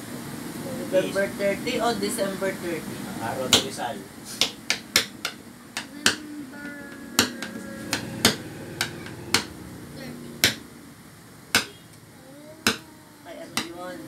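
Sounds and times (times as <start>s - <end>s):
sharp taps: 4.4s - 6.2s, 10.4s - 10.6s, 11.5s - 11.8s.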